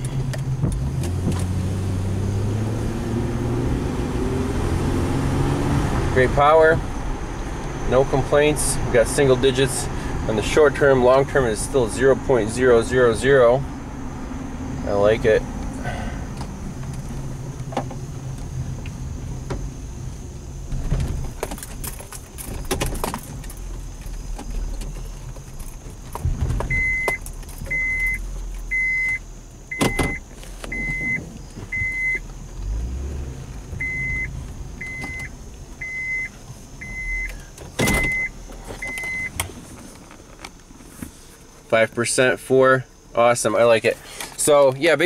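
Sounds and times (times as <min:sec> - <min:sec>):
vehicle rumble: 0:00.0 - 0:45.0
high-pitched warning chime beeps: 0:26.7 - 0:31.2, 0:33.8 - 0:39.3.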